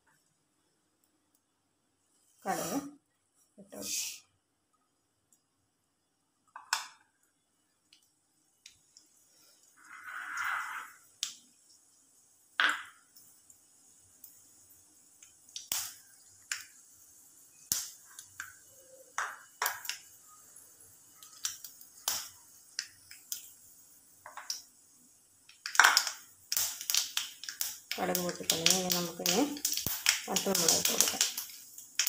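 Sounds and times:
seeds popping in hot oil: 6.4 - 32.0.

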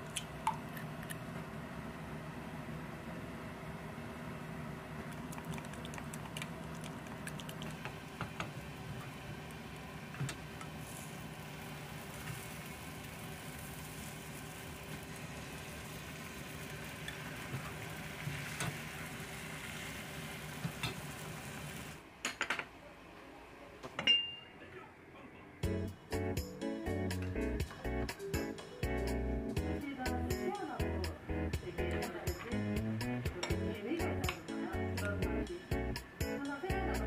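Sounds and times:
low fan hum: 0.0 - 22.0, 24.8 - 37.0
food sizzling in pan: 7.5 - 22.0.

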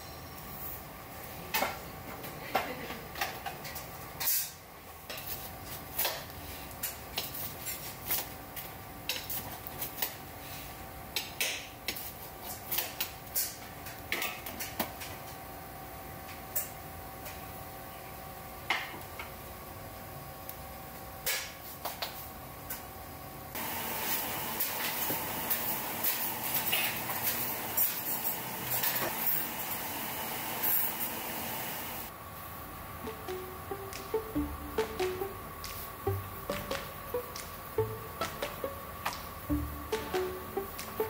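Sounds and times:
kitchen equipment hum: 22.4 - 41.0.

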